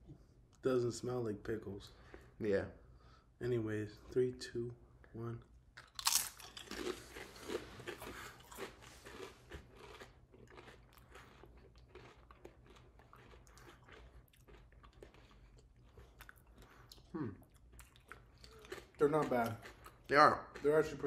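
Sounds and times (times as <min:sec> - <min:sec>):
crunching potato chips: 0:05.8 - 0:16.4.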